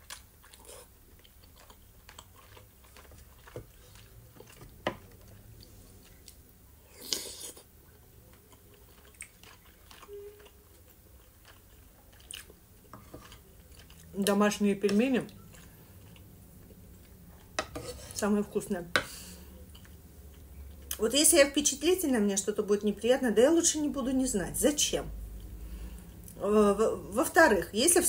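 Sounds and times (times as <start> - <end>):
chewing soft food: 0.0 - 17.6, 19.6 - 21.0.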